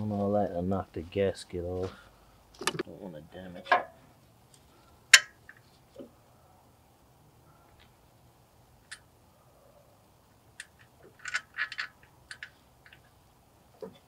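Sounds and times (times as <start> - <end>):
small metal parts clicking: 10.6 - 13.1.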